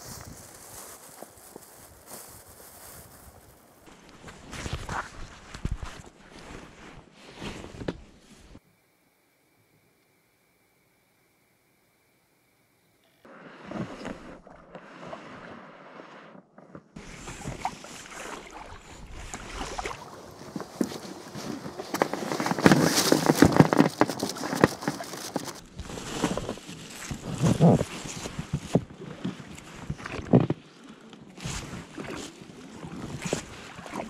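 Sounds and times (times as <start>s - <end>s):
oars splashing and knocking: 16.6s - 34.0s.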